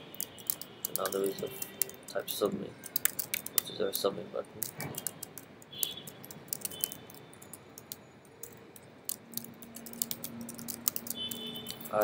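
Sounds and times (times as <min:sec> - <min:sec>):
keyboard keystroke clicks: 0:04.6 - 0:11.9.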